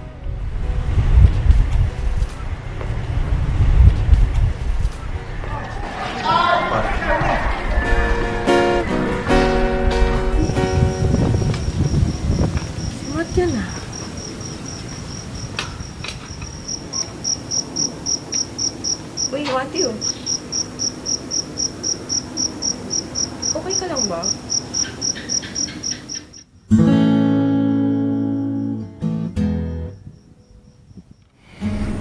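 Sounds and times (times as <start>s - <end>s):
crickets chirping: 9.4s - 31.6s
acoustic guitar chord: 26.7s - 29.9s.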